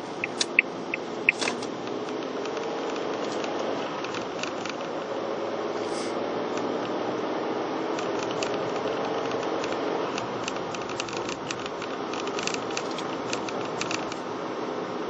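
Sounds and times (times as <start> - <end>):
car road and tyre noise: 0.0 - 15.0
small sharp ticks and rattles: 0.2 - 5.2, 7.9 - 14.3.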